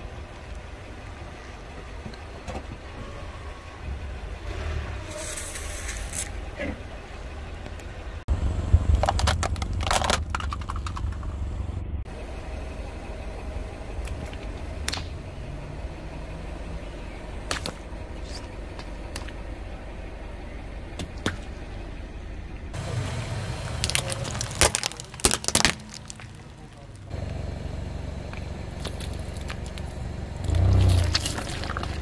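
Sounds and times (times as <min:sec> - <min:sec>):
car rumbling: 0:00.0 - 0:32.0
plastic cracking and snapping: 0:09.0 - 0:11.2, 0:23.7 - 0:27.1.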